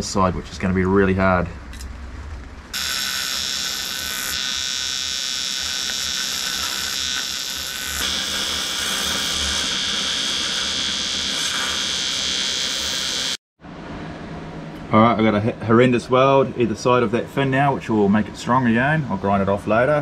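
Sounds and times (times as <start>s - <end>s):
welding arc buzzing: 2.7s - 13.4s.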